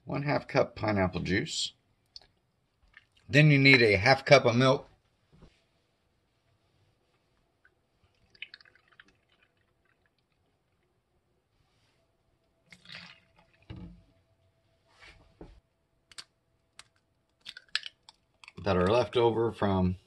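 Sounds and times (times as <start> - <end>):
liquid pouring: 2.2 - 3.4, 8.0 - 11.0, 12.7 - 14.0
liquid splash: 8.1 - 10.4, 12.7 - 14.0.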